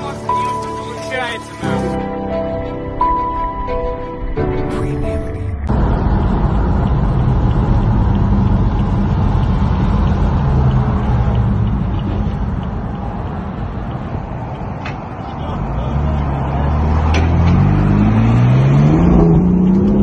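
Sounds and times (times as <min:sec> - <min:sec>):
road and wind noise in car: 0:05.5 - 0:20.0.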